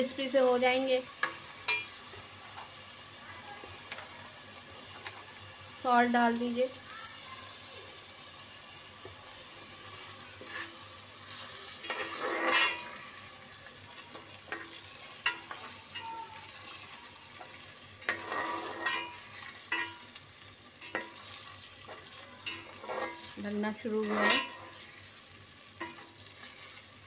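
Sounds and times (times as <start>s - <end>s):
rice sizzling in oil: 0.0s - 27.0s
metal spatula scraping pot: 9.9s - 13.3s, 14.0s - 20.2s, 20.8s - 25.0s, 25.8s - 26.8s.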